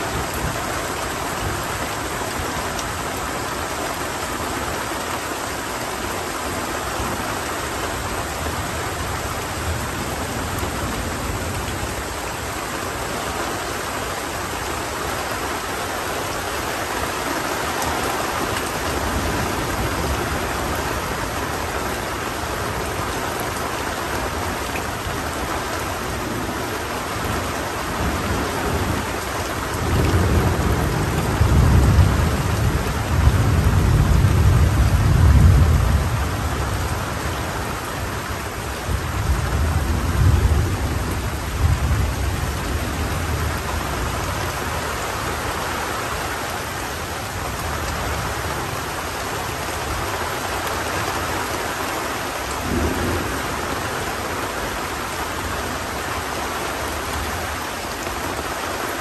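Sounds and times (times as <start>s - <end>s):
rain falling steadily: 0.0s - 59.0s
rolling thunder: 29.8s - 37.2s, 52.5s - 54.4s.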